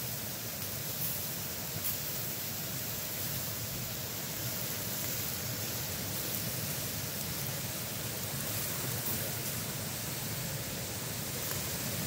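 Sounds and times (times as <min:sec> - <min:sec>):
fish sizzling on a grill: 0:00.0 - 0:12.0
faint crackles: 0:04.3 - 0:12.0.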